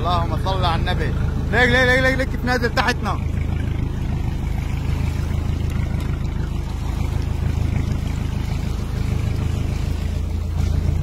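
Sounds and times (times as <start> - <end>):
boat engine humming: 0.0 - 11.0
water noise: 0.0 - 11.0.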